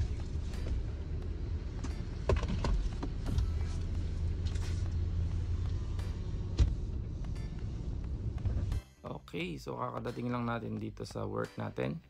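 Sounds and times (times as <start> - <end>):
car cabin low rumble: 0.0 - 8.8.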